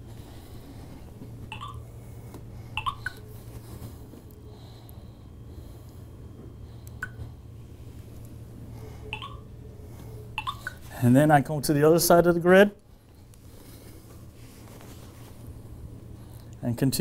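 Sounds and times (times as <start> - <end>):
low steady hum: 0.0 - 17.0
short electronic beeps: 1.5 - 1.8, 9.1 - 9.4, 10.4 - 10.8.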